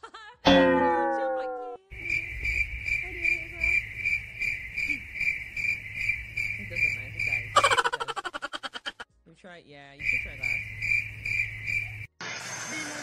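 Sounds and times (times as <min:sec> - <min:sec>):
high-pitched cricket-like chirping: 0:01.9 - 0:09.0, 0:10.0 - 0:12.1.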